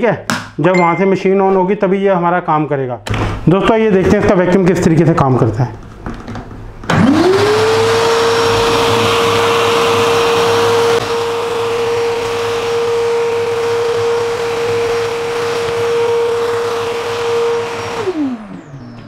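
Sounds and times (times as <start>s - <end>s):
vacuum extractor motor whine: 6.8s - 19.0s.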